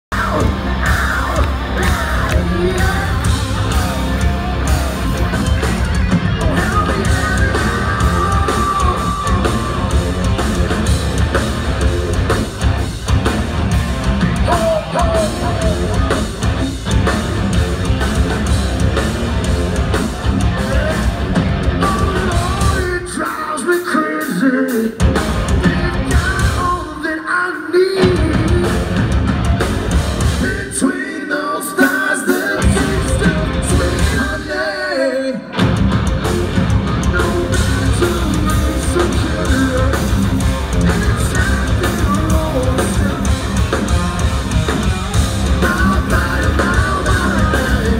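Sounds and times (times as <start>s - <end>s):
bass guitar: 0.0s - 23.3s, 24.5s - 27.0s, 28.0s - 30.9s, 32.4s - 34.6s, 35.4s - 47.9s
distorted electric guitars: 0.0s - 47.9s
drums: 0.0s - 47.9s
person singing and shouting: 0.1s - 5.2s, 6.2s - 10.1s, 14.3s - 16.4s, 45.5s - 47.9s.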